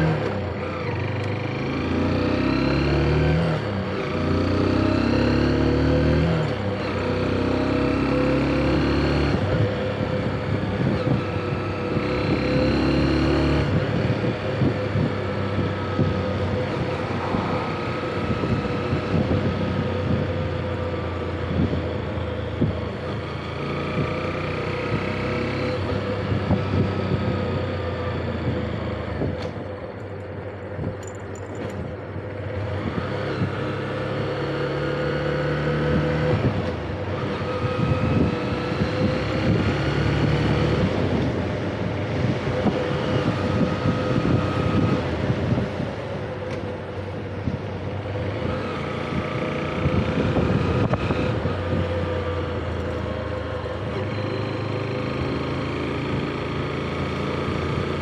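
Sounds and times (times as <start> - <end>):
motorcycle engine accelerating: 0.0 - 29.9, 30.8 - 58.0
wind rumble on microphone: 8.7 - 34.7, 35.4 - 54.2.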